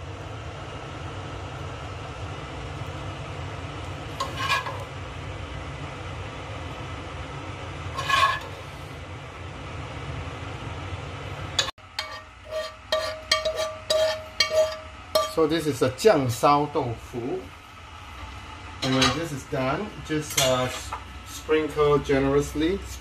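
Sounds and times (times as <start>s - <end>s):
metal spoon scraping plate: 4.2s - 4.9s, 8.0s - 8.6s, 11.6s - 15.4s.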